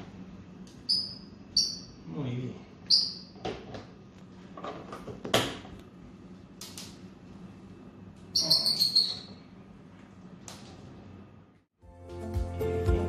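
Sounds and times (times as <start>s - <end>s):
shrill squeak: 0.9s - 2.0s, 8.3s - 9.5s.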